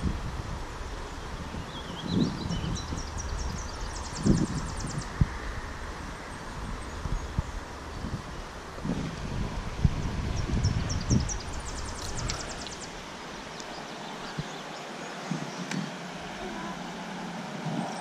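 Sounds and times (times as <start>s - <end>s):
wind buffeting microphone: 0.0s - 16.5s
creek rushing: 3.0s - 18.0s
small bird chirping: 10.3s - 15.7s.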